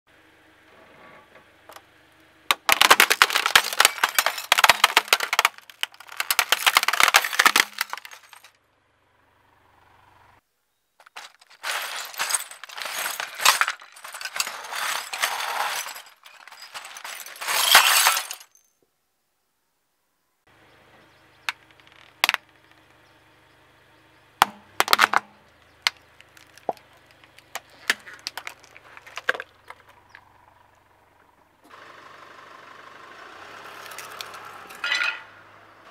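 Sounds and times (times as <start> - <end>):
plastic snapping and cracking: 2.5 - 8.4
glass crunching under tyre: 2.5 - 8.5, 11.0 - 18.7, 21.5 - 22.9, 24.5 - 30.2, 33.7 - 35.3
glass grinding: 2.7 - 8.5, 11.0 - 18.6, 33.9 - 35.3.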